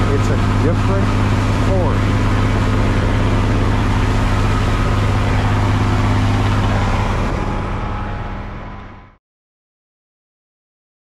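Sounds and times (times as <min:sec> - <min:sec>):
wake water rushing: 0:00.0 - 0:08.8
boat engine droning: 0:00.0 - 0:09.2.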